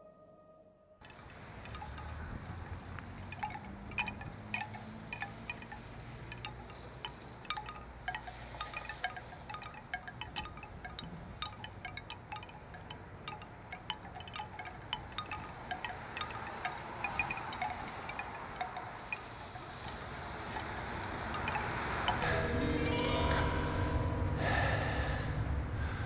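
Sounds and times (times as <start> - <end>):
chimes tinkling: 1.1 - 26.0
low hum: 18.8 - 26.0.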